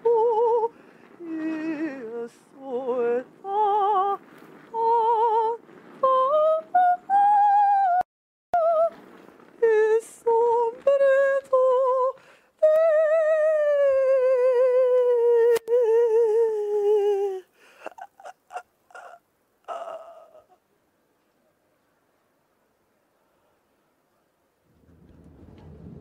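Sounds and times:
woman singing with vibrato: 0.0s - 9.0s, 9.6s - 20.6s.

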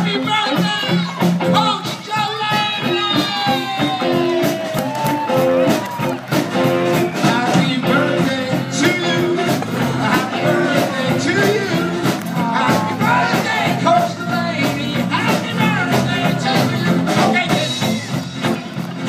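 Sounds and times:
drum kit: 0.0s - 19.0s
electric guitars: 0.0s - 19.0s
person singing: 6.6s - 18.3s.

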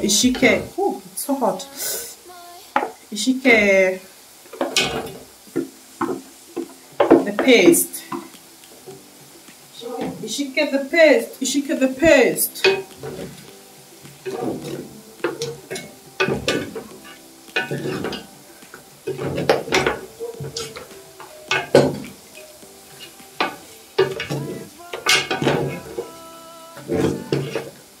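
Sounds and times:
food sizzling in a pot: 0.0s - 28.0s.

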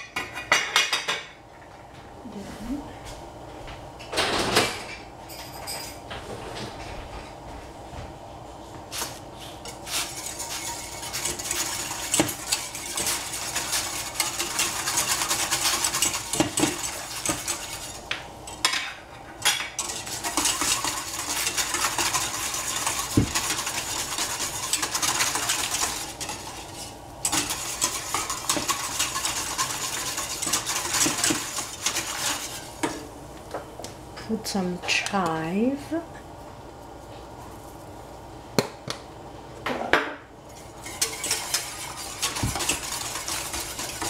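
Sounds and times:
spoon stirring in a pot: 8.9s - 33.1s, 40.5s - 44.0s
utensil clinking on pot: 9.6s - 33.0s, 40.5s - 44.0s.

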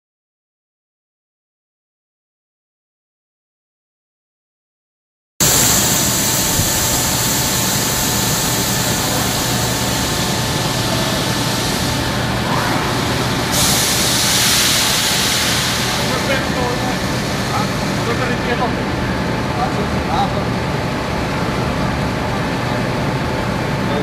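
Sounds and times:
rush of hiss: 5.4s - 18.2s
machinery hum: 5.4s - 24.0s.

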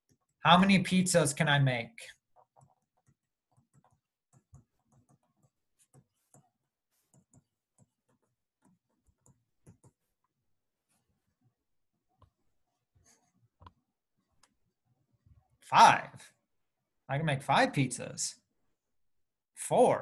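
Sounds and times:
stylus tapping on tablet screen: 2.4s - 10.3s.

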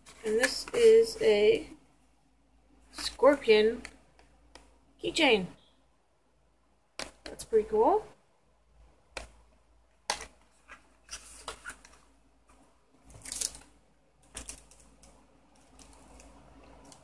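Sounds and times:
packaging being handled: 10.0s - 17.0s.

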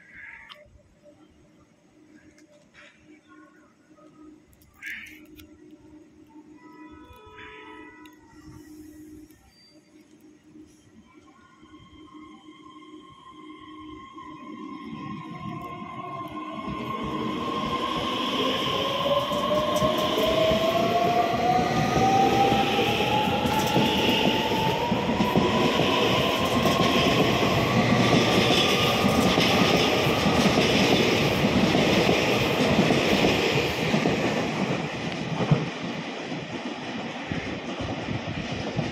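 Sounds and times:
train traction motors whining: 11.6s - 34.0s.

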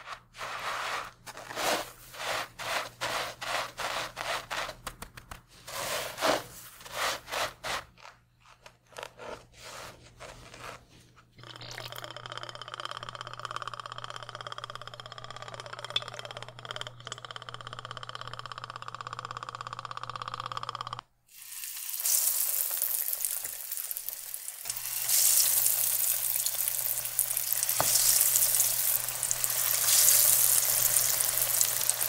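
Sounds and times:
breadcrumbs crunching and scraping: 0.0s - 11.0s, 24.9s - 32.0s
oil trickling into a pan: 21.3s - 32.0s.

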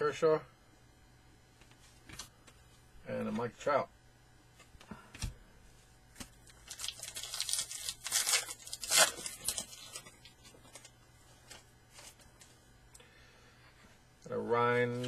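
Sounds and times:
wrapper tearing and crinkling: 6.4s - 10.9s.

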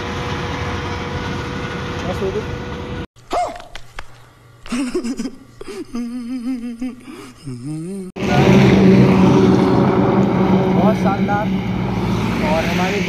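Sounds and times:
man's voice gasping: 5.6s - 8.1s
vehicle engine running: 8.2s - 13.0s.

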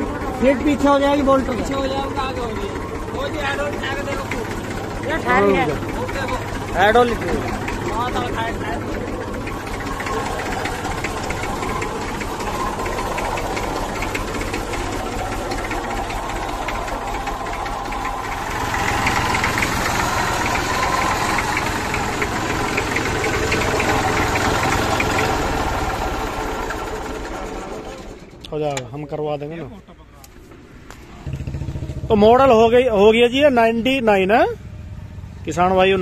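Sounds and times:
tractor diesel engine idling: 0.0s - 36.0s.

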